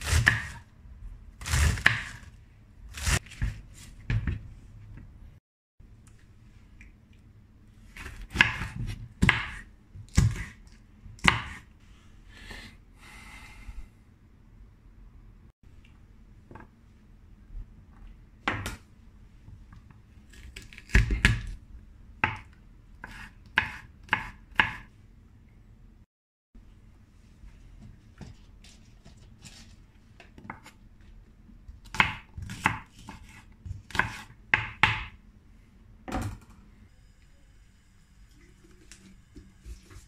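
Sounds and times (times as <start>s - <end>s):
knife chopping on cutting board: 0.0s - 0.6s, 1.4s - 2.2s, 8.0s - 10.6s, 11.2s - 11.7s, 22.2s - 24.9s, 31.8s - 35.2s.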